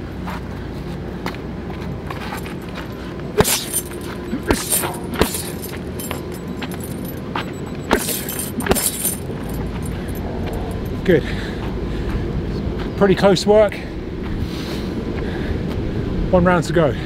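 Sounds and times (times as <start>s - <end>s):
chain jangling: 2.2s - 11.0s
boxing gloves hitting punch bag: 3.4s - 6.2s, 7.9s - 9.4s.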